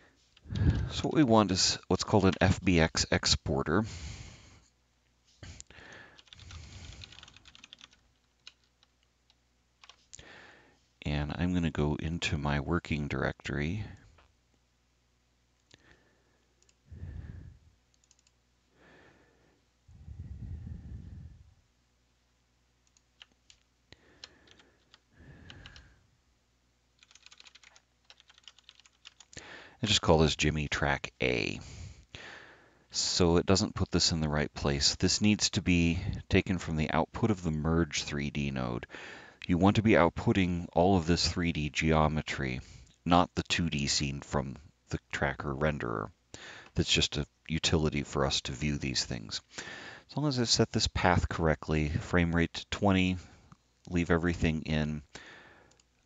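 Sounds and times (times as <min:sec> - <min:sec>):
typing on computer keyboard: 0:06.2 - 0:10.1, 0:18.0 - 0:18.4, 0:22.9 - 0:25.8, 0:27.0 - 0:29.4.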